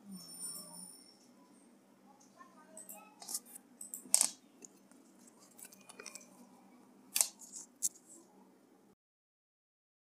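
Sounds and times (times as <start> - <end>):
faint low hum: 0.0 - 9.0
sharp clicks and crackles: 2.8 - 6.3.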